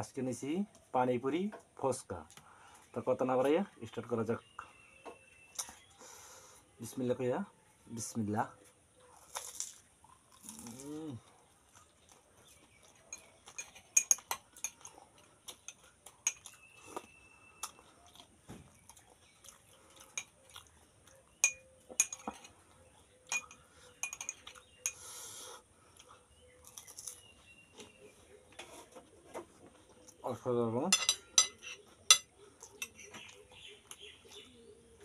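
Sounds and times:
metal spoon clinking glass: 13.1 - 14.8, 15.7 - 16.6, 21.4 - 22.5, 23.3 - 25.0, 30.9 - 32.3.

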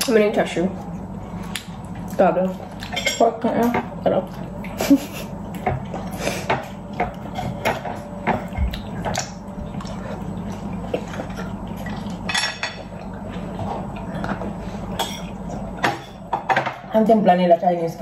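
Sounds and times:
steady low hum: 0.0 - 18.0
utensils clinking against plates: 2.8 - 3.9, 12.3 - 12.9, 15.0 - 16.9.

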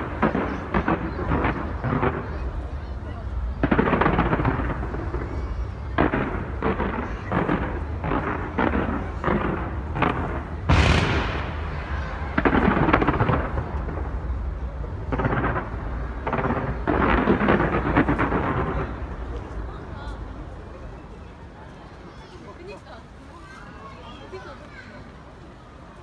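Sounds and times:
fireworks bangs and crackling: 0.0 - 22.9
low rumble: 7.4 - 20.8.

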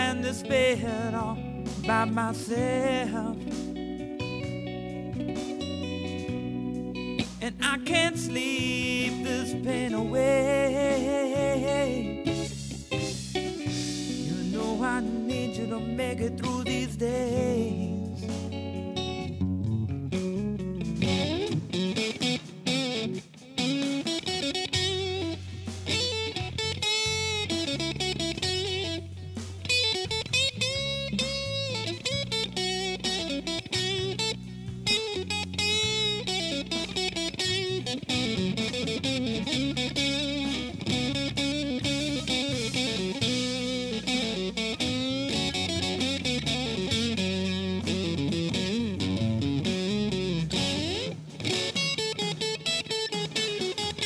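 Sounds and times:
band backing line: 0.0 - 54.0
electric guitar blues solo: 0.0 - 54.0.

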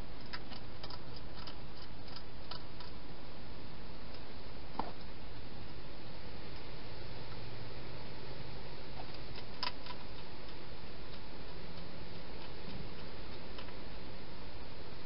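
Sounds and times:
steady hiss: 0.0 - 15.0
hedgehog eating clicks: 0.2 - 3.0, 9.0 - 13.8.

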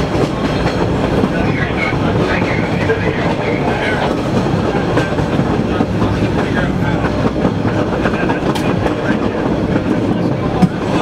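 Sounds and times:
subway car wheels rumbling: 0.0 - 11.0.

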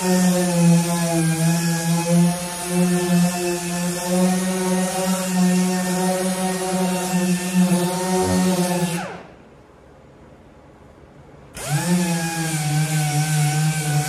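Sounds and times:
electric power sander motor: 11.6 - 14.0.

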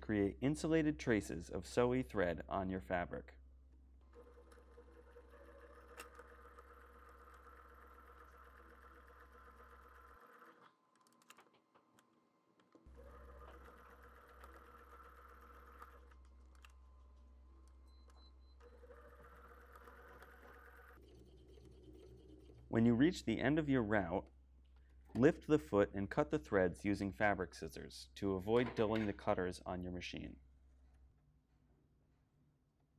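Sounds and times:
sewing machine stitching: 4.1 - 10.7, 12.9 - 16.2, 17.9 - 22.7.

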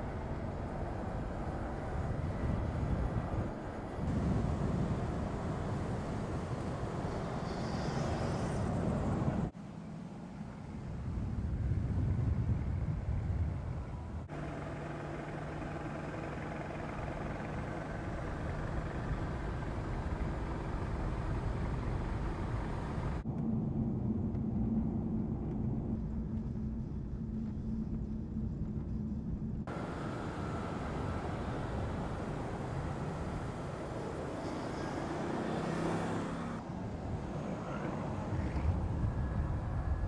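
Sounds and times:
car engine cruising: 14.2 - 23.6, 29.7 - 36.7
tyre and road noise: 17.1 - 40.0.

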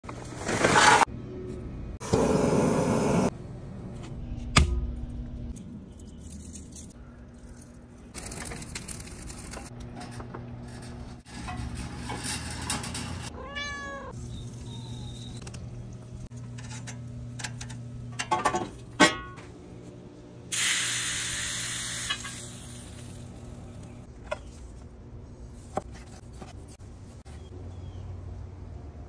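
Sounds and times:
cat meowing: 13.3 - 14.9.

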